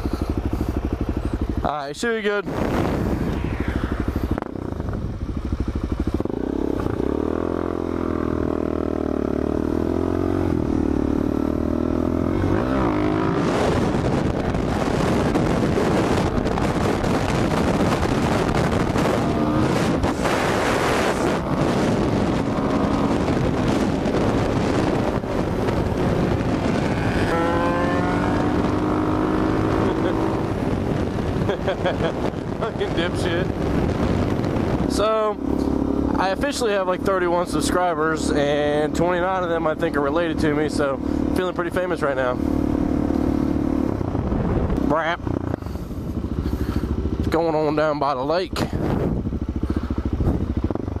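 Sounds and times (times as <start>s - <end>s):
motorcycle engine accelerating: 0.0s - 51.0s
wind buffeting microphone: 0.0s - 51.0s.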